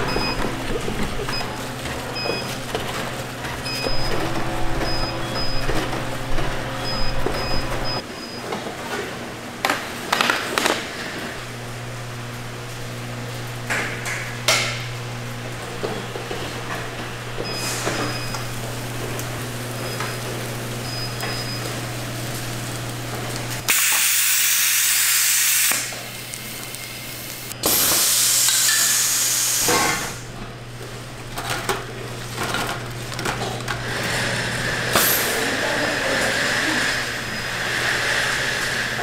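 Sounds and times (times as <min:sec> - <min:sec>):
machinery humming: 0:00.0 - 0:08.6, 0:11.0 - 0:39.0
loud hissing blasts: 0:23.6 - 0:26.3.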